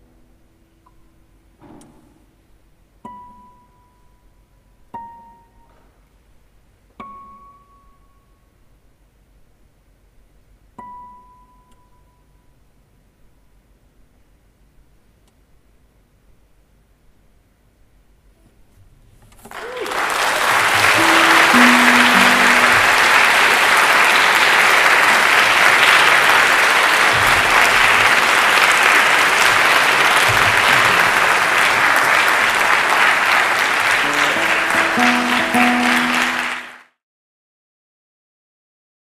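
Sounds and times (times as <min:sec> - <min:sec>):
plucked classical guitar notes: 0:03.0 - 0:04.2, 0:04.9 - 0:05.6, 0:07.0 - 0:07.8, 0:20.8 - 0:23.2, 0:34.0 - 0:36.8
audience applauding: 0:19.4 - 0:37.0.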